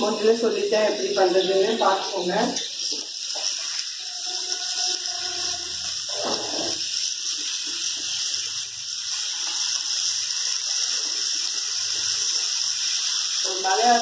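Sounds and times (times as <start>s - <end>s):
fish sizzling in oil: 0.0s - 14.0s
spatula scraping pan: 2.7s - 8.3s.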